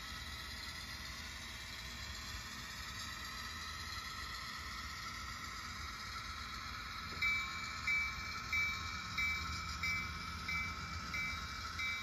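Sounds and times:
steady hum: 0.0 - 12.0
locomotive bell through tiny speaker: 7.2 - 12.0.

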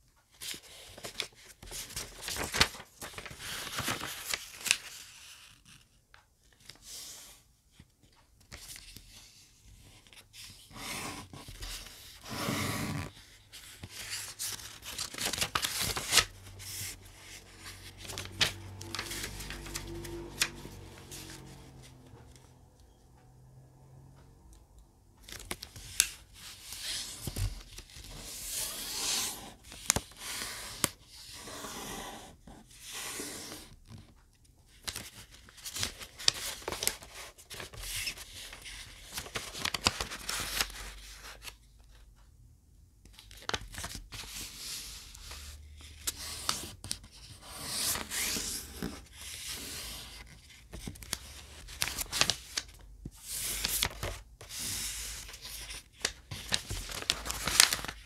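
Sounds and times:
paper rustling and sliding: 0.4 - 5.8, 8.5 - 22.0, 25.3 - 34.0, 34.8 - 41.6, 43.2 - 58.0
paper creases crackling: 0.5 - 5.8, 11.5 - 22.4, 34.8 - 41.6, 43.1 - 58.0.

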